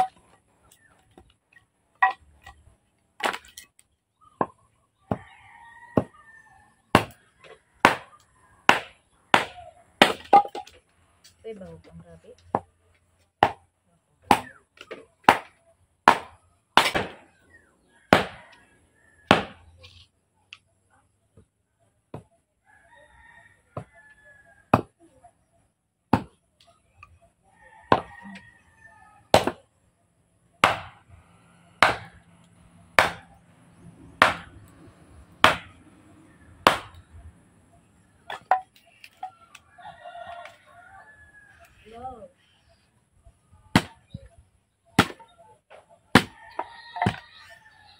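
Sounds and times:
machete chopping wood: 3.2 - 3.7, 6.9 - 7.2, 7.8 - 10.8, 13.4 - 13.6, 14.3 - 17.3, 18.1 - 18.4, 19.2 - 19.7, 26.1 - 26.4, 27.9 - 28.1, 29.3 - 29.7, 30.6 - 31.0, 31.8 - 32.2, 32.9 - 33.4, 34.1 - 34.7, 35.4 - 35.8, 36.6 - 37.1, 43.7 - 44.2, 45.0 - 47.2.

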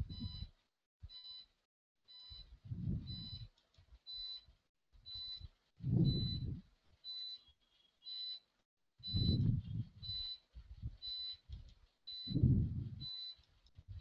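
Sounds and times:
low muffled thumps: 9.1 - 10.1.

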